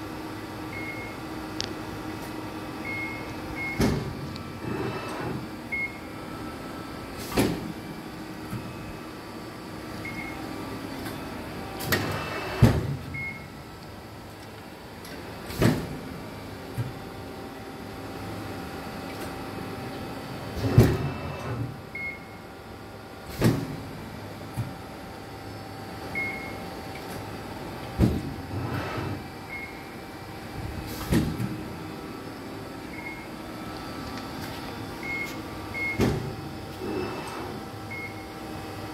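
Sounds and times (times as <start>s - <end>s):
hydraulic pump hum: 0.1s - 22.4s
mechanical clunk of press ram: 3.8s - 4.2s, 7.2s - 7.7s, 20.6s - 21.7s, 35.9s - 36.4s.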